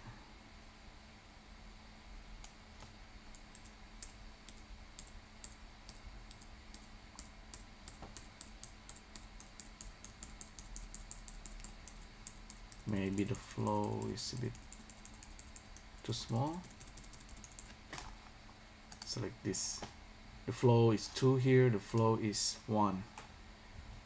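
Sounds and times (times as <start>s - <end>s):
low steady hum: 0.0s - 24.0s
computer mouse clicking: 2.4s - 18.1s, 18.9s - 19.1s.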